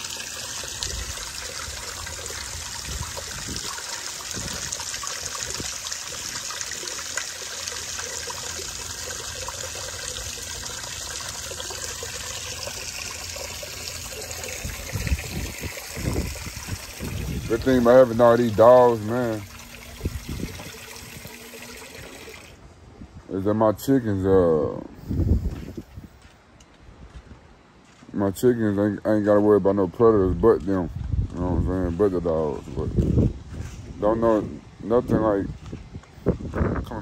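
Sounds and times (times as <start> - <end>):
water hissing: 0.0 - 22.6.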